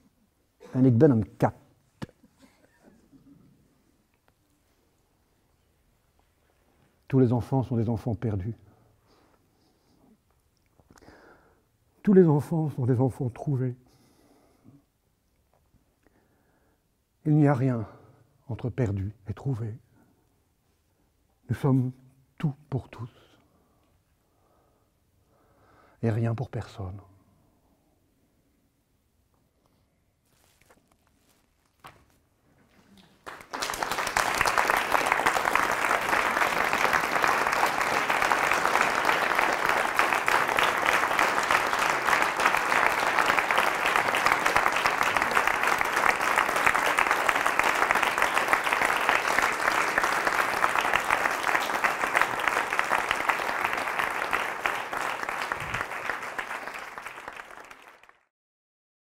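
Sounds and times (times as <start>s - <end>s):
audience applauding: 33.0s - 58.3s.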